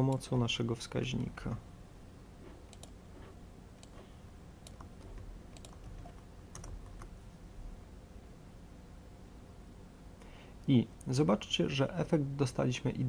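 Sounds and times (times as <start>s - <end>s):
faint typing on laptop keyboard: 2.4s - 7.2s.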